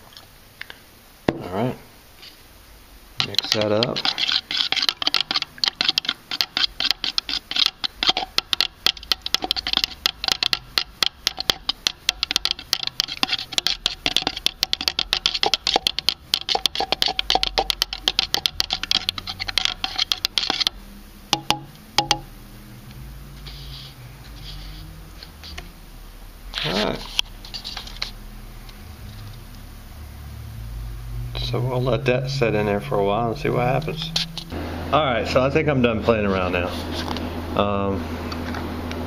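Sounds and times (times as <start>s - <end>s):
stirring in a foam cup: 3.2s - 22.3s, 23.3s - 25.7s, 26.5s - 29.5s, 31.4s - 34.6s
light taps on cup: 21.4s - 22.2s.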